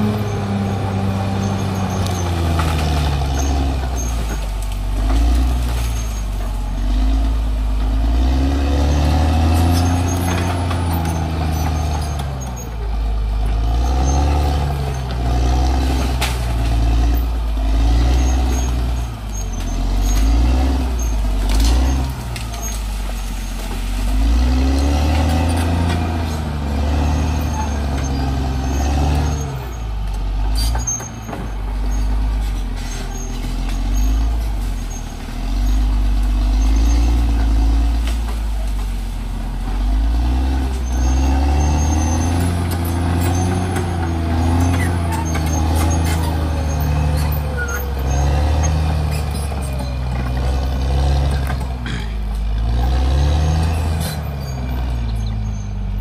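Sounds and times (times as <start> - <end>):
bulldozer diesel engine under load: 0.0 - 56.0.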